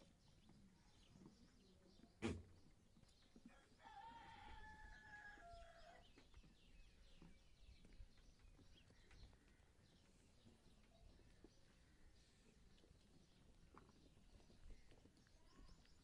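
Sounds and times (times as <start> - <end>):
faint rooster crow: 3.4 - 6.2.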